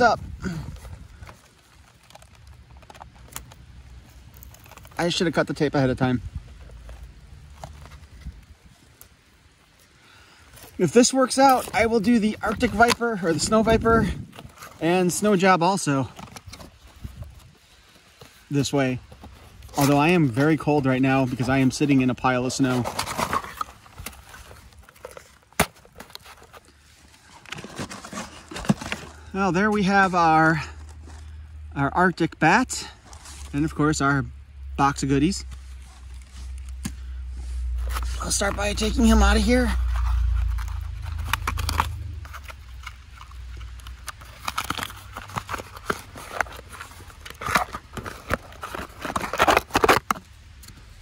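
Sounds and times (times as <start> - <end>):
cardboard and plastic crinkling: 0.0 - 33.9, 34.8 - 51.0
cardboard box rustling and tapping: 27.5 - 29.2
fingernail peeling tape: 39.9 - 50.1.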